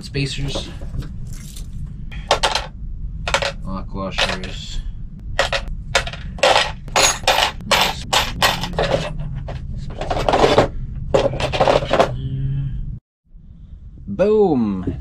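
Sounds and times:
metal washers clinking: 5.4s - 9.3s.

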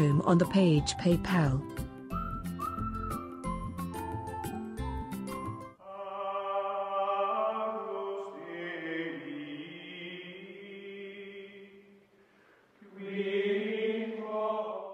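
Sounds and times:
choir-like chanted tones: 5.8s - 12.0s, 12.8s - 14.9s.

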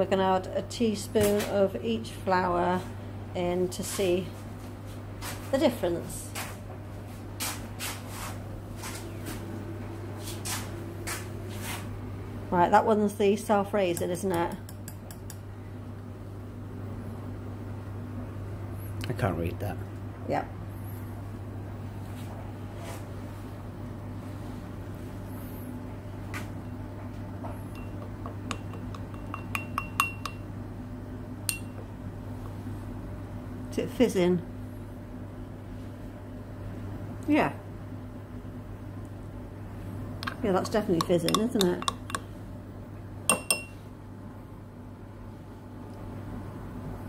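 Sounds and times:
steady low hum: 0.0s - 47.0s
shuffling and rustling: 6.3s - 12.0s
teaspoon clinking against glass: 27.8s - 30.4s, 41.0s - 42.2s, 43.3s - 43.8s.

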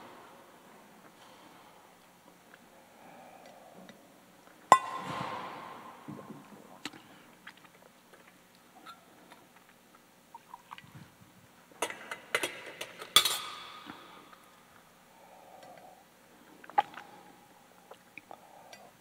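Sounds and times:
metal and glass vessels clinking: 4.7s - 5.5s.

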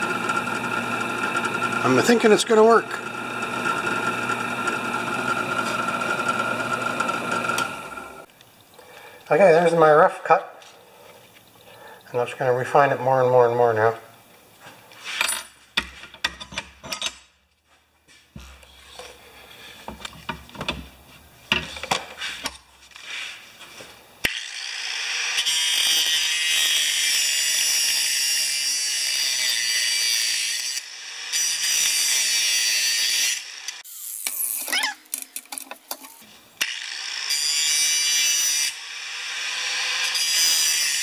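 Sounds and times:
angle grinder grinding metal: 0.0s - 8.3s, 24.3s - 35.0s, 36.1s - 41.0s
metal tools knocking and clanking: 15.2s - 17.3s.

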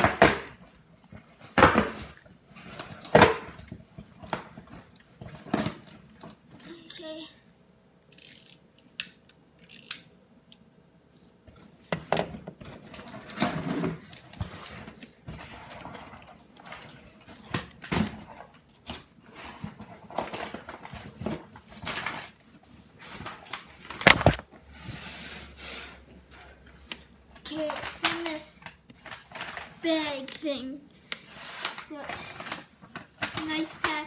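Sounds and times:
cardboard rustling and scraping: 12.6s - 26.5s, 31.2s - 34.0s.

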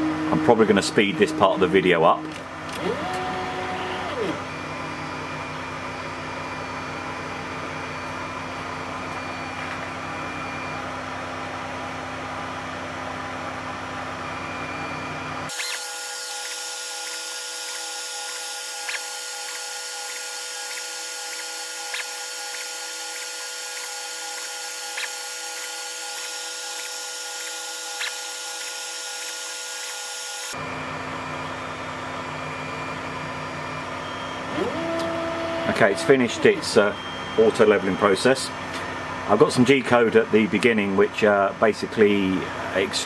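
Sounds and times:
printer humming: 0.0s - 10.9s, 15.5s - 39.3s
printer motors whining: 0.3s - 5.4s, 15.5s - 30.6s, 33.2s - 38.9s.

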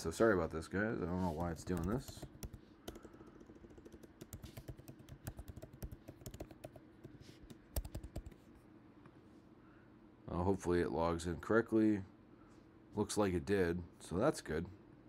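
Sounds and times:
computer keyboard typing: 1.4s - 8.4s.

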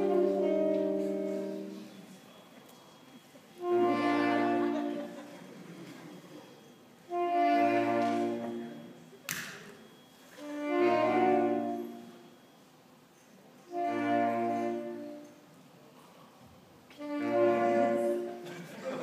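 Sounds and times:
saxophone and trombone chords: 0.0s - 1.8s, 3.6s - 5.2s, 7.1s - 8.8s, 10.4s - 12.2s, 13.7s - 15.2s, 17.0s - 18.4s.

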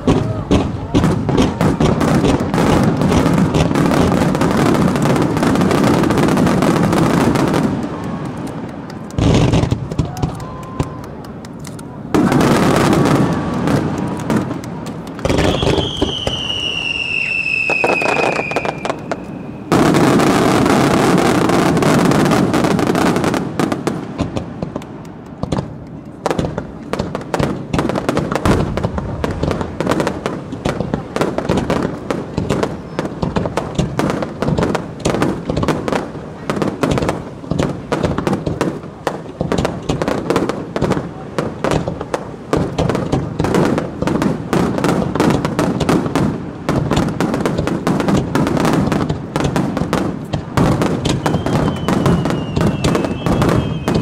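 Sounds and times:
single firework booms: 0.0s - 7.8s, 9.2s - 10.9s, 12.1s - 14.6s, 25.4s - 54.0s
fireworks banging and crackling: 0.0s - 54.0s
whistling firework: 0.0s - 54.0s.

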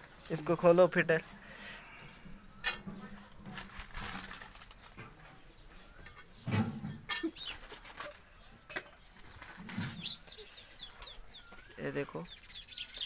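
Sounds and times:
metal plates clicking and clinking: 2.6s - 4.4s, 6.0s - 9.9s
packaging rustling: 3.2s - 5.0s.

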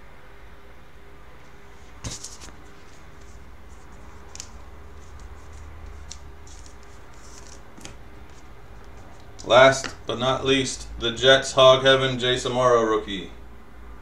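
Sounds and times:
cards sliding against each other: 1.9s - 10.1s.

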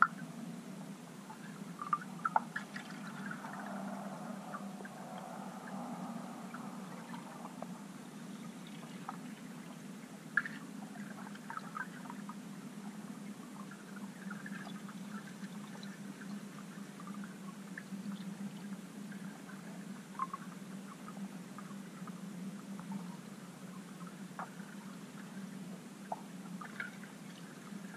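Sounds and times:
faint underwater clicks and crackles: 0.0s - 27.9s
underwater low murmur: 0.0s - 27.9s.

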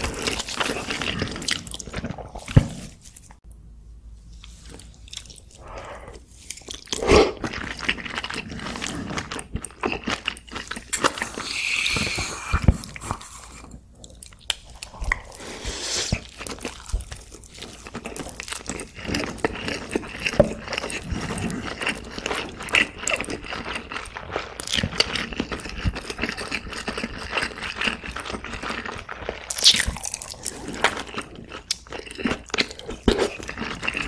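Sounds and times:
close chewing with wet smacking: 16.2s - 30.2s.

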